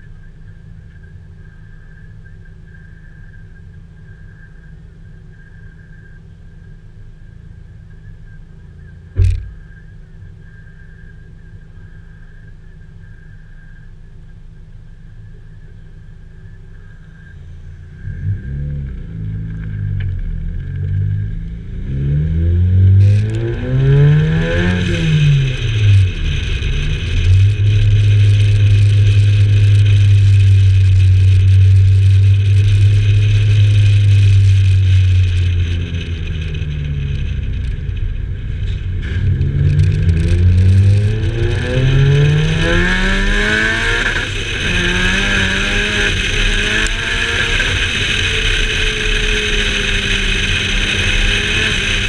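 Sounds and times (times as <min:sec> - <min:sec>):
car engine: 0:00.0 - 0:52.0
sharp thump: 0:09.1 - 0:09.8.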